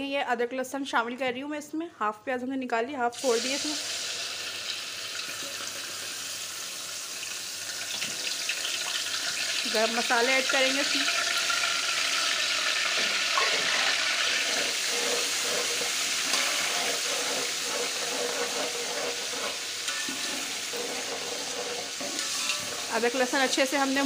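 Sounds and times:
hot oil sizzling in a pot: 3.1 - 24.0
metal spoon stirring: 12.2 - 24.0.

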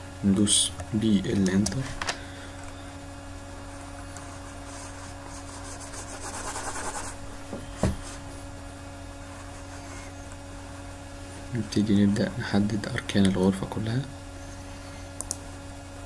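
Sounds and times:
low electrical hum: 0.0 - 16.0
mouse sliding over desk: 9.3 - 10.3.

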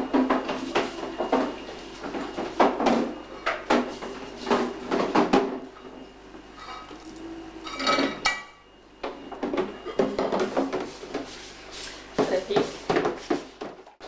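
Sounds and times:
dishes and cutlery clattering: 7.6 - 8.6.

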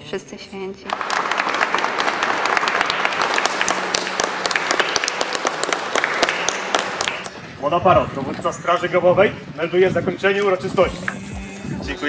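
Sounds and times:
crowd applauding: 0.8 - 7.4.

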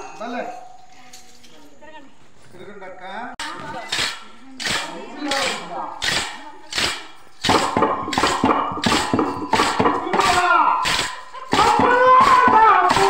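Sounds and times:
wooden hand clappers beating: 3.9 - 13.0.

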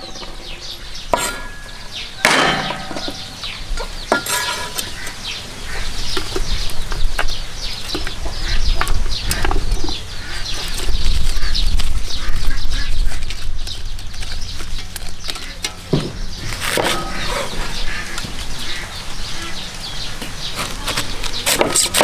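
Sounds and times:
chickens peeping and clucking: 0.0 - 22.0
metal cookware clinks: 1.2 - 3.3.

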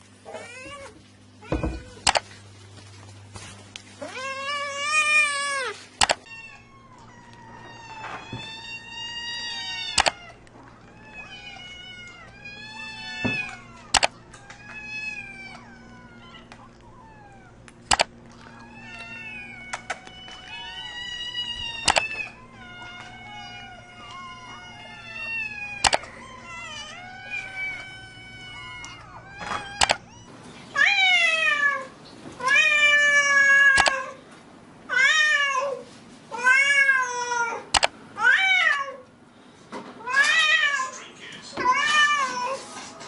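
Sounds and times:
kittens meowing: 0.2 - 2.2, 4.0 - 34.2
sharp clicks: 2.0 - 2.3, 6.0 - 6.3, 9.9 - 10.2, 13.9 - 14.5, 17.6 - 18.1, 21.8 - 22.2, 25.8 - 26.1, 29.8 - 30.0, 33.7 - 34.0, 37.7 - 38.0.

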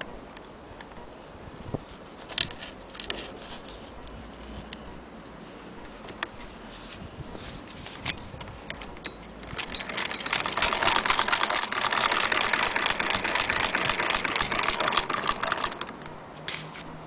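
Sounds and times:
hand-crank sewing machine clatter: 9.5 - 16.0.

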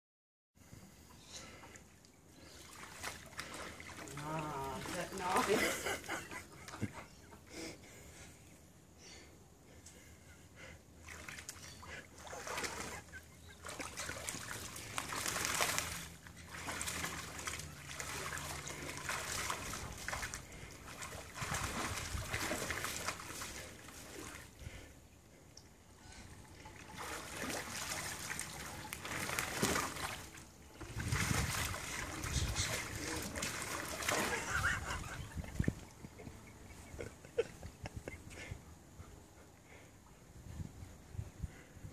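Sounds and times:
water sloshing and splashing: 1.5 - 7.0, 11.0 - 37.4.

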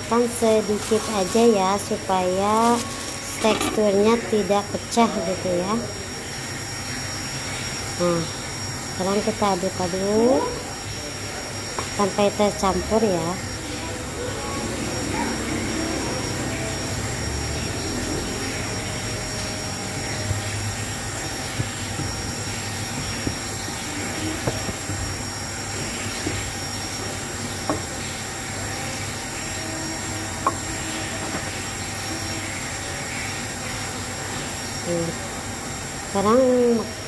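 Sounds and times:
steady whirring hum: 0.0 - 37.0
dough being stirred in bowl: 0.1 - 4.6.

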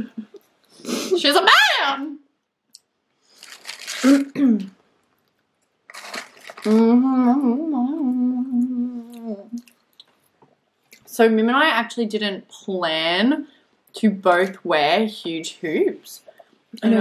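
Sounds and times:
woman humming while eating: 6.7 - 9.6.

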